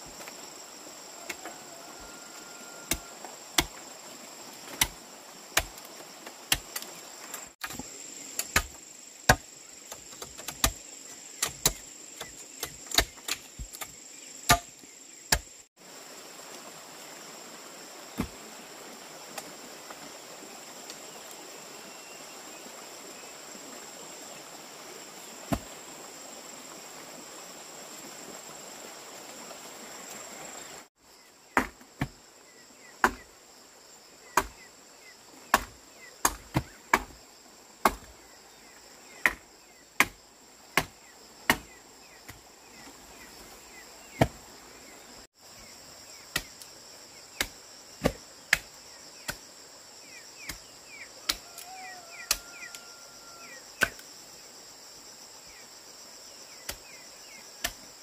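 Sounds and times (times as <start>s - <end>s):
insects droning: 0.0s - 58.0s
chopping strikes: 7.6s - 10.8s, 11.4s - 15.5s, 31.6s - 32.1s, 33.0s - 33.3s, 34.4s - 34.6s, 35.5s - 37.2s, 37.8s - 38.1s, 40.0s - 40.2s, 40.8s - 41.7s, 47.4s - 48.7s.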